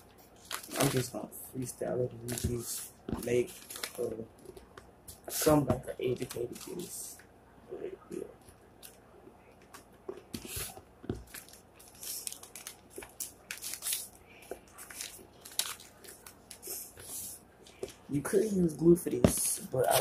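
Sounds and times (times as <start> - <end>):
paper rustling and crinkling: 0.4 - 1.1, 2.3 - 4.5, 10.3 - 18.0.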